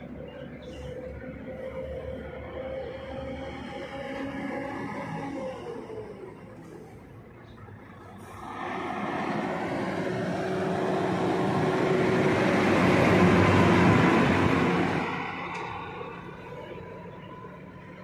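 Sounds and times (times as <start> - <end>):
passing vehicle rushing: 8.1 - 18.0.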